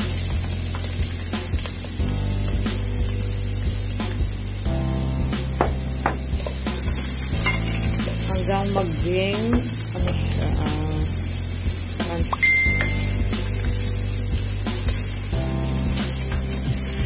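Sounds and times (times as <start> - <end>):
onion and garlic sizzling in oil: 0.2 - 15.3.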